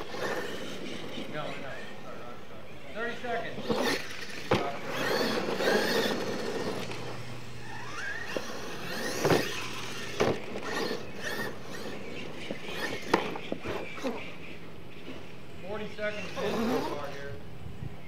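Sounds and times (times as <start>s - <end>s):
toy truck motor whining: 0.0s - 2.0s, 3.6s - 14.4s, 16.0s - 17.3s.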